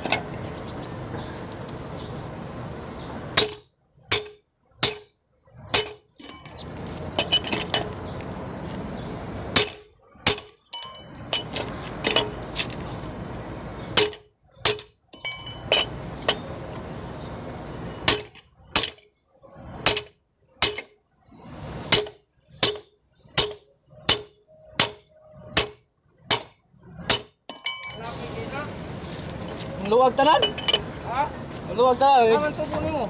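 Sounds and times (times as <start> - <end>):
hammer clanking on steel wrench: 9.6 - 12.4, 27.1 - 28.0, 30.3 - 31.0.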